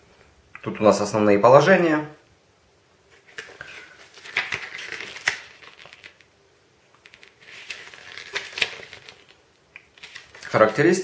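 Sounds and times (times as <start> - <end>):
paper pages rustling: 3.1 - 6.3, 7.0 - 11.0.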